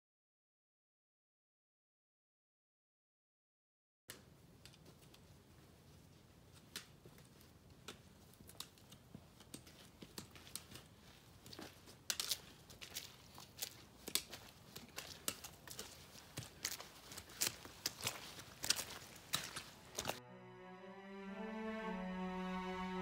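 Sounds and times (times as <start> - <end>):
footsteps crunching on snow: 5.6 - 20.2
trekking pole tips clicking: 6.6 - 20.2.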